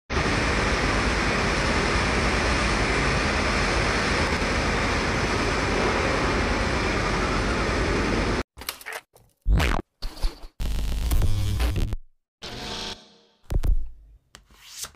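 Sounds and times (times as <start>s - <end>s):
electronic glitch effect: 9.5s - 13.2s.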